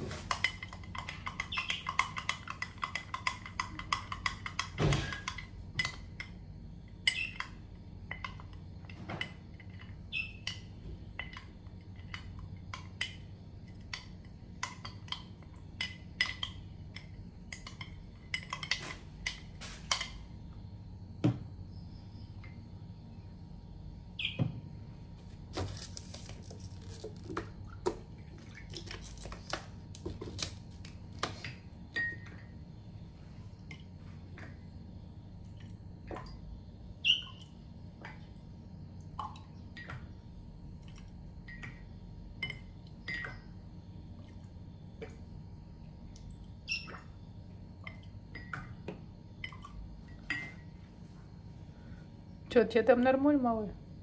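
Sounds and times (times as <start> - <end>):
young bird chirping: 10.1 - 10.4, 24.2 - 24.4, 37.0 - 37.4.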